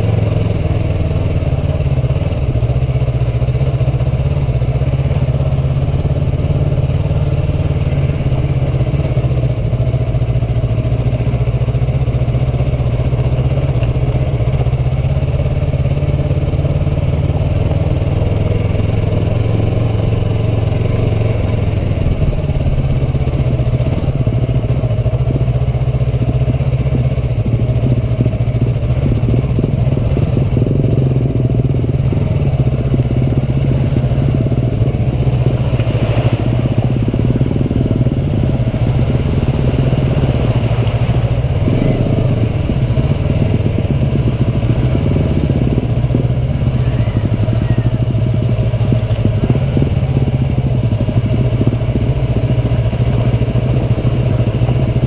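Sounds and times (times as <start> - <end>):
motorcycle engine at low revs: 0.0 - 55.0.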